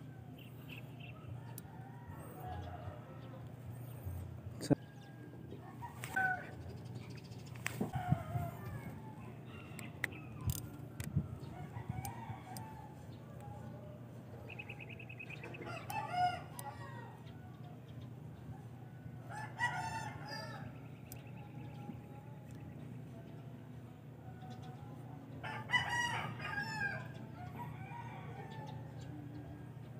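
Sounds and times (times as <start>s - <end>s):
steady low hum: 0.0s - 29.9s
rooster crowing: 1.1s - 3.4s, 7.9s - 10.5s, 15.6s - 17.5s, 19.3s - 20.7s, 25.4s - 29.1s.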